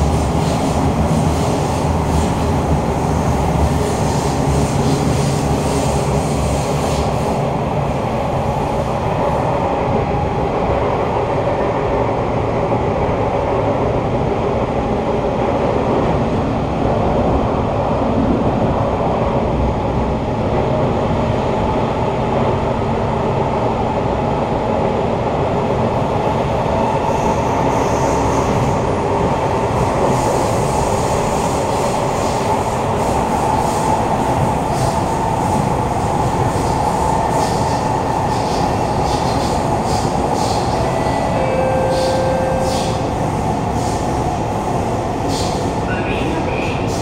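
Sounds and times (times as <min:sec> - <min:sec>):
train wheels rumbling on rail: 0:00.0 - 0:47.0.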